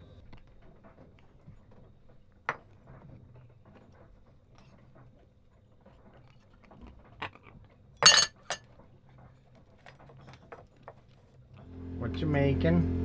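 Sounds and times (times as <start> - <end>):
dishes and utensils clinking: 8.0 - 8.6.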